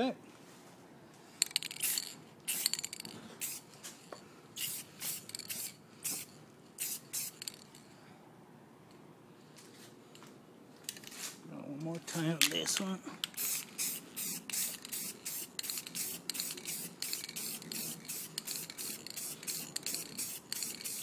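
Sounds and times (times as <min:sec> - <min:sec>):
aerosol can hissing and rattling: 0:01.4 - 0:03.6, 0:04.6 - 0:07.7, 0:13.2 - 0:21.0.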